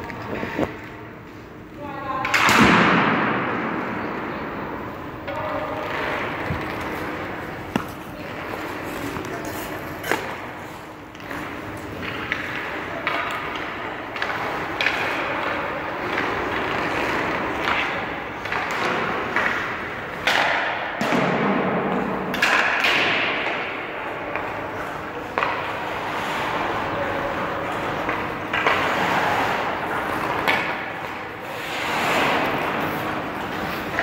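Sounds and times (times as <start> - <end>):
skate blades scraping ice: 6.1 - 20.3, 24.1 - 34.0.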